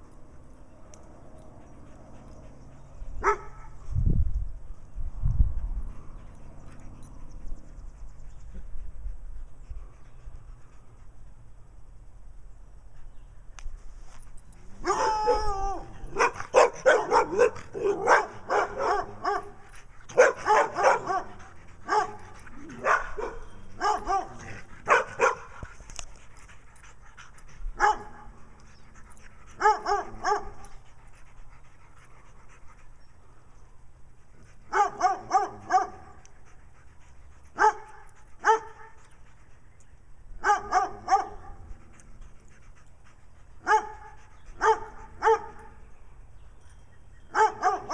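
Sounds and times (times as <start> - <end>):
dog barking: 3.2 - 3.7, 14.8 - 15.1, 16.1 - 19.5, 20.1 - 22.2, 22.8 - 25.5, 27.8 - 28.1, 29.6 - 30.6, 34.7 - 36.1, 37.6 - 37.8, 38.4 - 38.8, 40.4 - 41.6, 43.7 - 45.6, 47.3 - 47.9
dog whining: 14.8 - 16.2.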